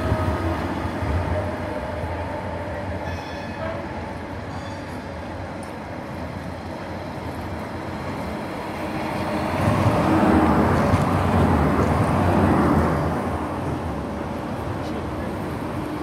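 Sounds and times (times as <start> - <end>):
vehicle hum and rushing: 6.2 - 16.0.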